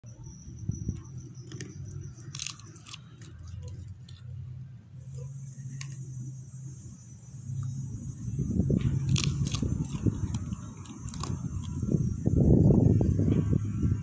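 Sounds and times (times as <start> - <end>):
low background hum: 0.0 - 14.0
dog crunching bone: 1.0 - 6.2, 8.9 - 11.9.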